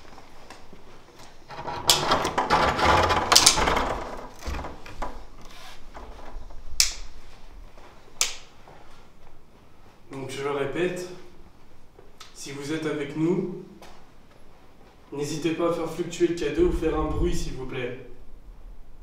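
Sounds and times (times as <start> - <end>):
rustling and shuffling: 0.0 - 10.4, 13.7 - 15.2
sharp clicks: 6.8 - 7.1.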